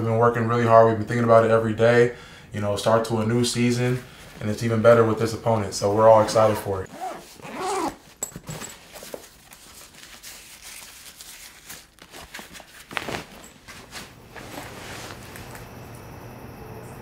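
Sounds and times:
cloth bag rustling: 5.8 - 15.6.

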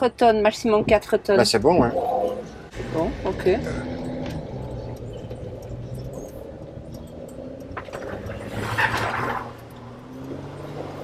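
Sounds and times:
diesel engine under load: 2.4 - 11.0.

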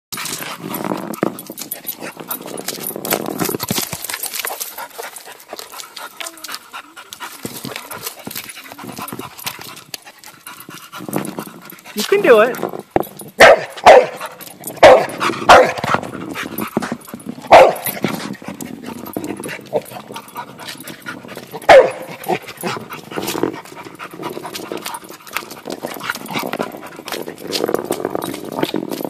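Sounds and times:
dog barking sharply: 13.4 - 14.2, 14.8 - 15.8, 21.7 - 22.1
heavy ball scuffing on asphalt: 14.9 - 19.9.

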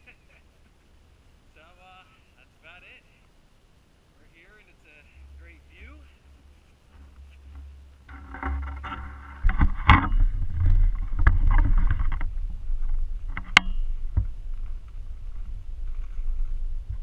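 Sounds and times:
rustling and knocks: 6.4 - 17.0
camera handling rumble: 6.6 - 17.0.

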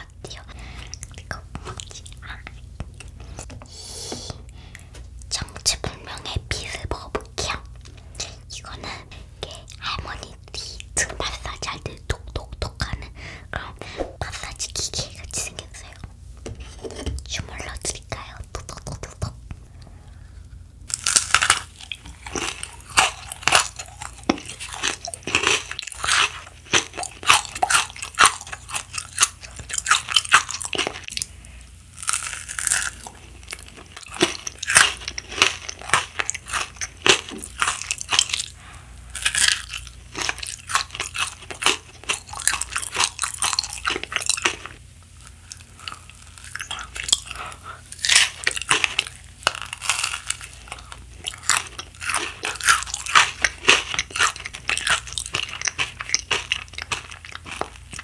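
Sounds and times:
candy crunching and chewing: 20.9 - 58.0.

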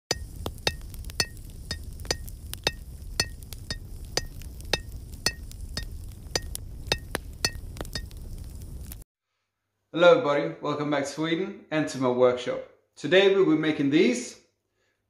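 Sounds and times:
hammer striking anvil: 0.1 - 8.1.

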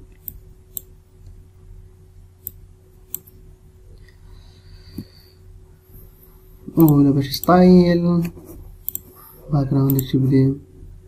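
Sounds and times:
faint electrical hum: 0.0 - 11.0
computer mouse clicking: 2.4 - 3.4, 6.8 - 7.6, 8.8 - 9.2, 9.8 - 10.2.

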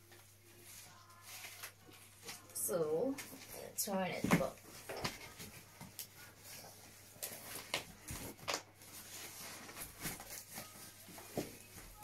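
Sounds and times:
monitor and packing being handled: 0.0 - 12.0.

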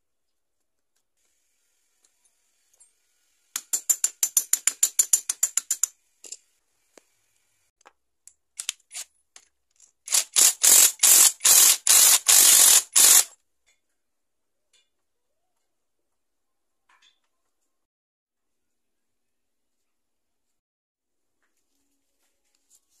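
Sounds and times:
ratchet clicking: 10.1 - 13.3.

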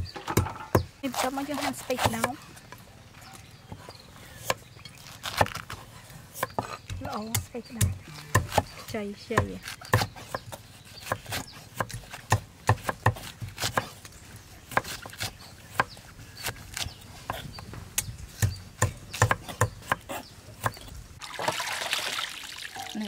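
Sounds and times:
cleaver chopping on wooden board: 0.1 - 2.4, 6.4 - 14.0, 14.7 - 20.8.

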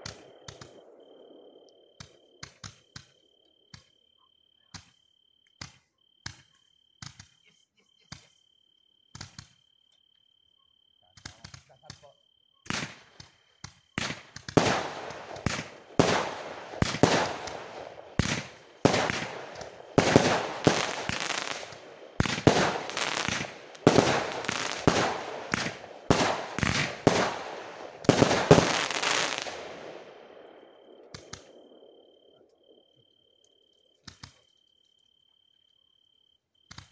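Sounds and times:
fireworks bangs: 12.7 - 32.1
rolling echo: 12.7 - 33.0.

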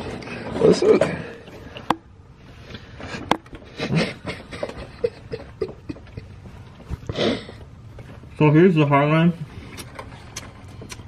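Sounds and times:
man chewing and lip-smacking: 9.6 - 11.0.

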